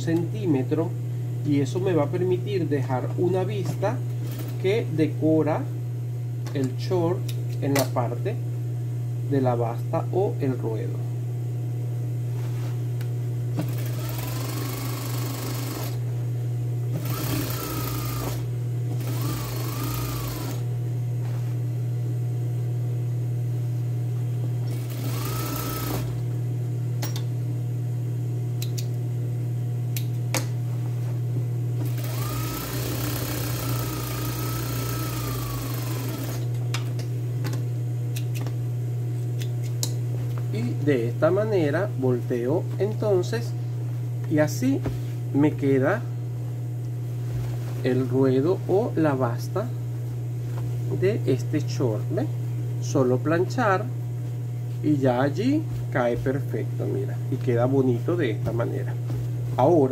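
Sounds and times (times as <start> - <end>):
steady low hum: 0.0 - 59.9
sewing machine stitching: 13.6 - 16.0, 17.0 - 20.6, 24.7 - 26.2, 31.8 - 36.5.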